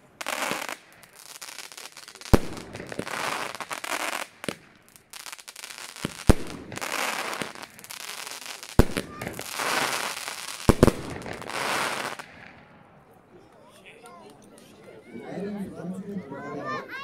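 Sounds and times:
fireworks bangs: 0.0 - 12.9.

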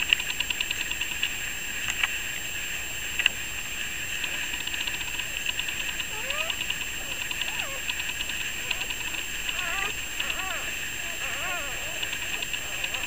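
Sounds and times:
steady hiss: 0.0 - 13.0
light clicking: 4.2 - 11.3, 12.0 - 13.0
puppies squeaking: 5.5 - 13.0.

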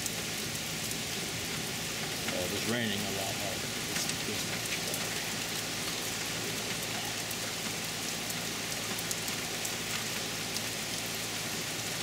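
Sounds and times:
hard rain hissing: 0.0 - 12.0
raindrops ticking: 0.0 - 12.0.

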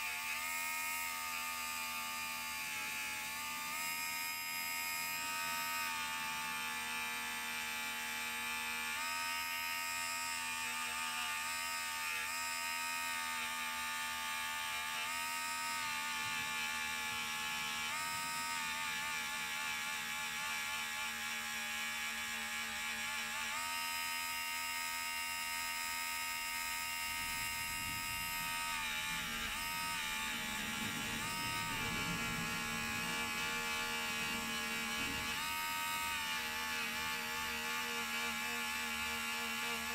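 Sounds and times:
rotary tool whining: 0.0 - 39.9
rough grinding noise: 26.6 - 39.9.

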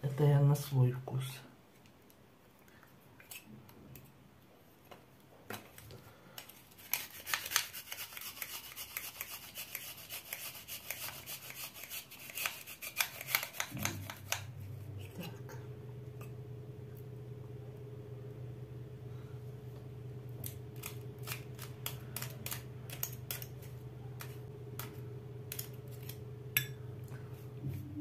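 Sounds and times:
steady low hum: 13.7 - 28.0.

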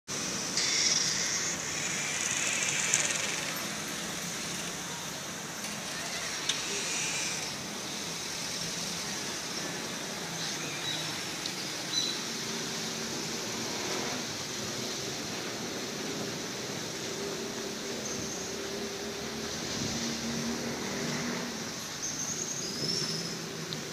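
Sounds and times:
street traffic noise: 0.1 - 23.9
small clicks: 2.1 - 3.8.

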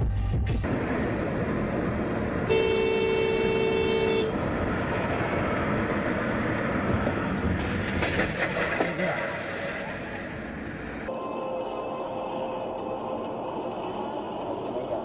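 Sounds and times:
car road and engine noise: 0.0 - 15.0
car horn blast: 2.5 - 4.4
motorcycle crashing clatter: 7.5 - 9.2.

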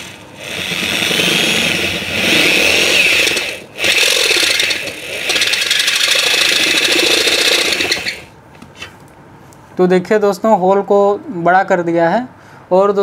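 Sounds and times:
electric drill cutting sheet metal: 0.0 - 8.3.

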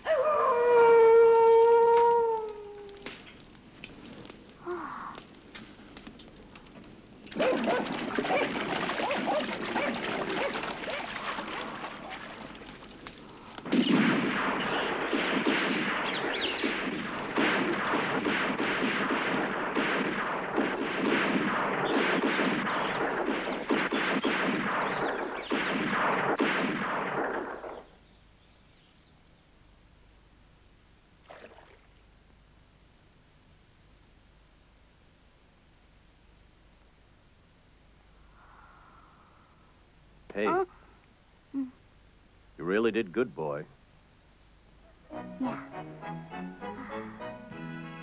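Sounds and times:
crackling flames of burning grass: 1.8 - 27.7.

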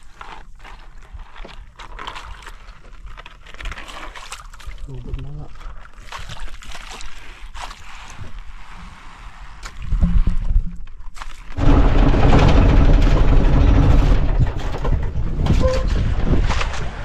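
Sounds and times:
boat engine running: 11.6 - 17.0
wind rumbling on microphone: 11.6 - 17.0.

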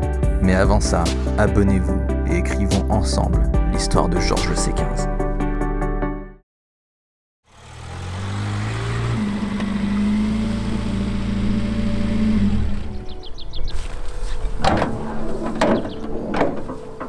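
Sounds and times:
van engine running: 7.5 - 16.0
door and latch clunks: 14.5 - 17.0.

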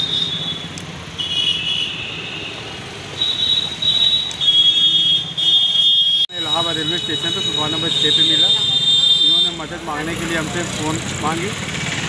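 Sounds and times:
road traffic rumble: 0.0 - 12.0
high-pitched horn blasts: 3.2 - 9.7.

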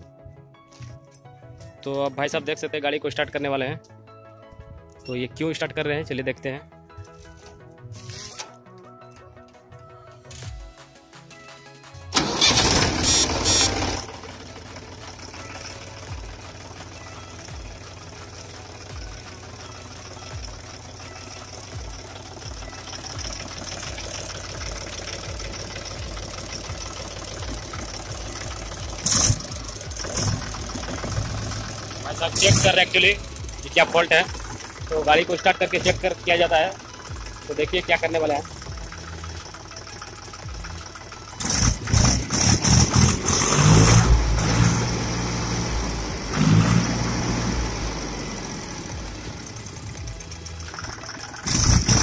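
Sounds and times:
tractor diesel engine idling: 10.1 - 52.0
loud noisy burst: 51.4 - 52.0.

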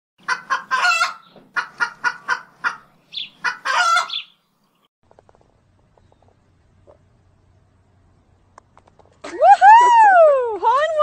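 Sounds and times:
chicken clucking and squawking: 0.2 - 4.3.

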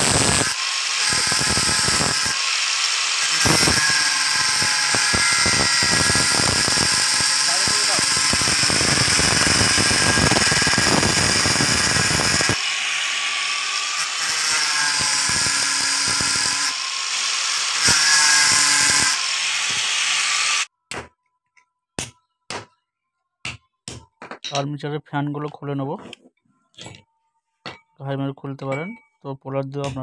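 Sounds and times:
angle grinder cutting metal: 0.0 - 20.7.

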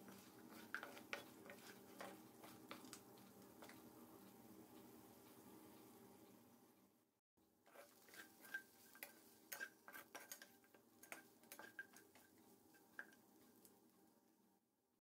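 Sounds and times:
metal spatula scraping a pan: 0.0 - 2.9, 7.7 - 13.2.

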